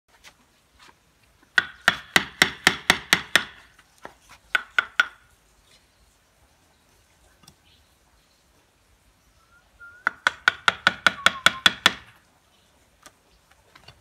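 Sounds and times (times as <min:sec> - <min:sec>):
wooden mallet striking chisel: 0:01.5 - 0:03.7, 0:04.5 - 0:05.2, 0:10.0 - 0:12.2.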